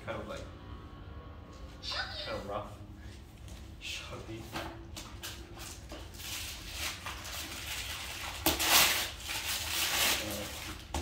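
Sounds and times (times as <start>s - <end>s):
packaging rustling and scraping: 5.2s - 11.0s.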